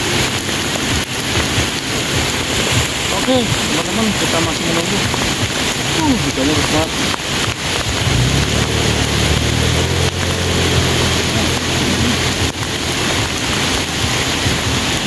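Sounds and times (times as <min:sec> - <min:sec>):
heavy rain on lake: 0:00.0 - 0:15.0
low droning engine hum: 0:06.9 - 0:15.0.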